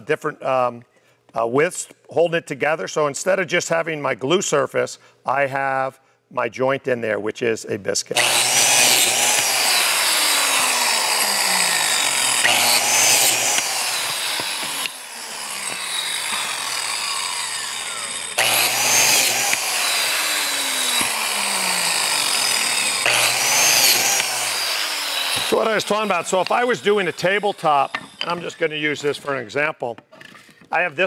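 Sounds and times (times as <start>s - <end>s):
biscuit joiner cutting wood: 8.2s - 29.4s.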